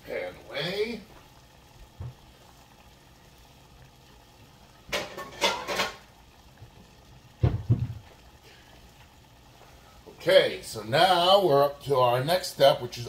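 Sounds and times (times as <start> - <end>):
cookware and utensils clattering: 4.9 - 6.1
dull low thump: 7.4 - 8.1.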